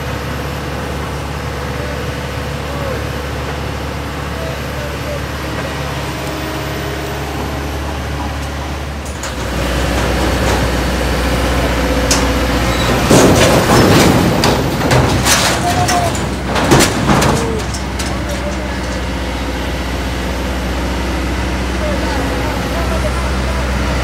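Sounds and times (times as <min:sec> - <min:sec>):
truck diesel engine under load: 0:00.0 - 0:24.0
clattering and sharp knocks: 0:11.8 - 0:19.3.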